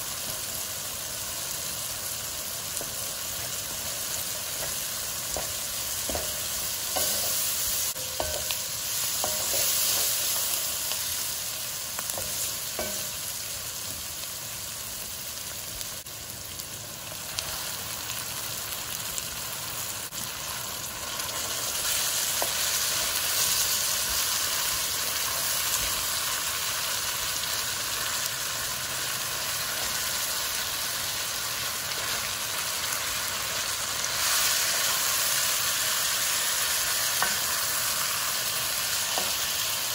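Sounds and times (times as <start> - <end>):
onions and meat sizzling in a pan: 0.0 - 39.9
spatula tapping a pan: 4.0 - 10.6, 12.0 - 13.3, 22.3 - 22.7, 37.1 - 37.6, 39.0 - 39.5.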